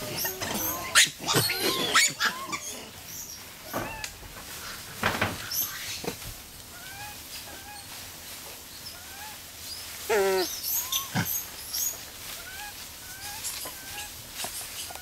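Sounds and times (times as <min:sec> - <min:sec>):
monkeys chirping calls: 0:00.0 - 0:04.0, 0:06.8 - 0:08.0, 0:08.8 - 0:15.0
wavering monkey call: 0:00.1 - 0:02.9, 0:06.8 - 0:08.0, 0:08.9 - 0:09.4, 0:10.0 - 0:14.2.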